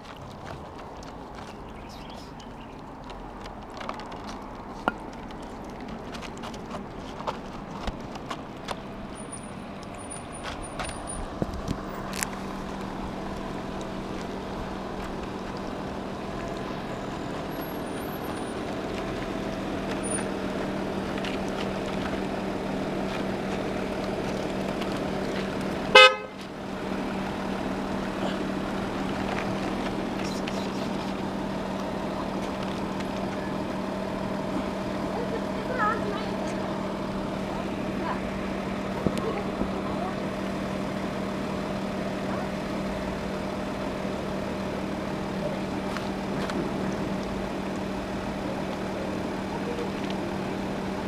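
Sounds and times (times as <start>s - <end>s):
engine hum: 0.0s - 51.0s
horn toot: 25.9s - 26.4s.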